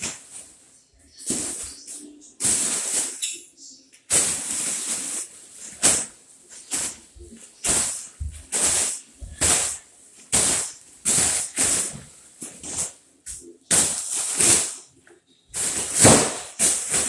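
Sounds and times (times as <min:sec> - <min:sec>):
foil balloon being punched: 0:15.9 - 0:17.0.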